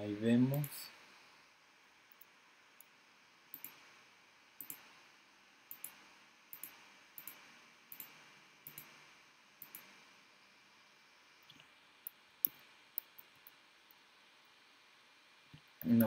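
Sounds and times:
low steady hiss: 0:00.0 - 0:16.0
computer mouse clicking: 0:03.5 - 0:03.9, 0:04.6 - 0:04.9, 0:05.7 - 0:09.0, 0:09.6 - 0:10.0, 0:11.4 - 0:13.6.

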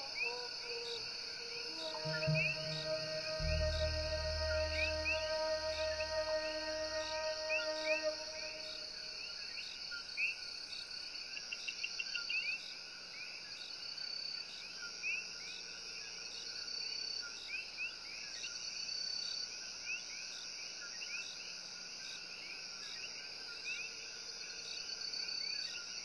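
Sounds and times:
high insect trill: 0:00.0 - 0:09.0
background music: 0:01.5 - 0:08.9.

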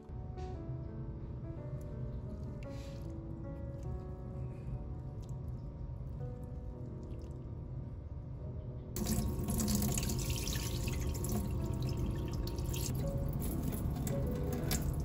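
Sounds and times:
water pouring into sink: 0:09.0 - 0:15.0.

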